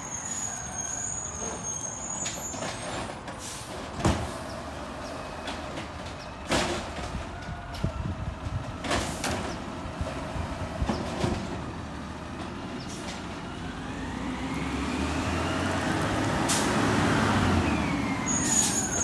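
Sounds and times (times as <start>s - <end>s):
garbage truck diesel engine: 0.0s - 19.0s.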